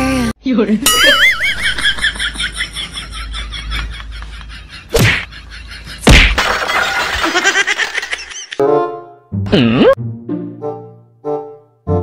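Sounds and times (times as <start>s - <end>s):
loud slap hits: 5.0s - 5.3s, 6.0s - 6.4s.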